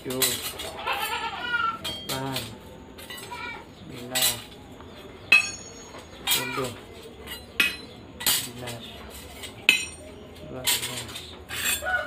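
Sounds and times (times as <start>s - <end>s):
metal blades clinking: 1.8s - 3.3s, 5.3s - 11.9s.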